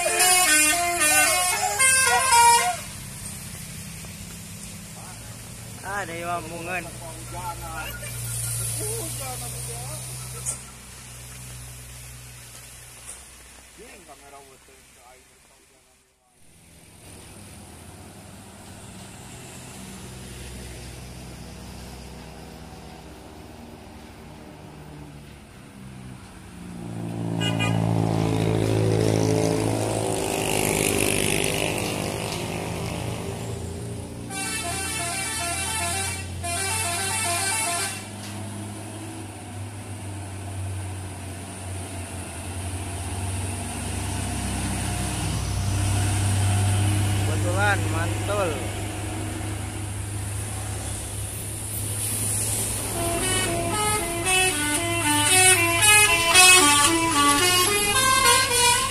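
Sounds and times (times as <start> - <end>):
multi-note truck horn: 0.0 - 3.0, 27.2 - 31.9, 34.2 - 38.5, 52.8 - 58.9
truck diesel engine: 0.0 - 15.2, 16.4 - 58.9.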